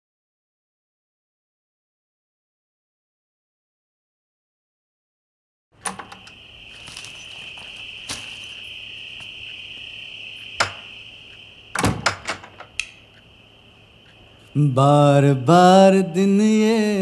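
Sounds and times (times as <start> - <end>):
crickets chirping: 5.8 - 17.0.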